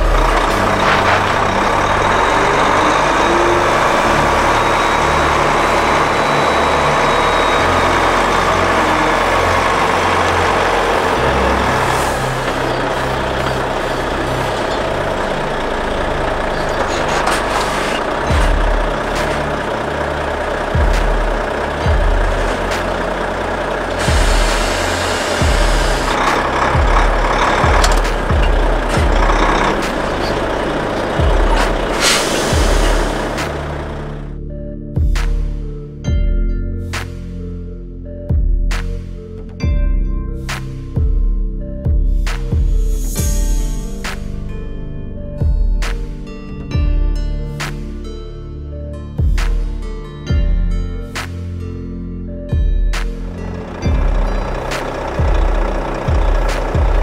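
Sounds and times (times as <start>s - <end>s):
truck diesel engine rumble: 0.0s - 36.1s, 40.3s - 57.0s
deep bass notes: 0.0s - 57.0s
hip-hop beat: 25.4s - 33.6s, 52.6s - 57.0s
heavy kick drum: 35.0s - 35.4s, 38.3s - 38.9s, 41.0s - 43.8s, 45.4s - 46.0s, 52.6s - 52.9s, 53.9s - 54.4s, 55.2s - 57.0s.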